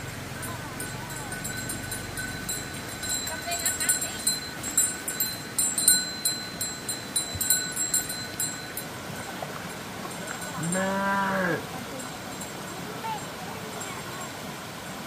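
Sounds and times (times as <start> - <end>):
calf mooing: 10.6 - 11.7.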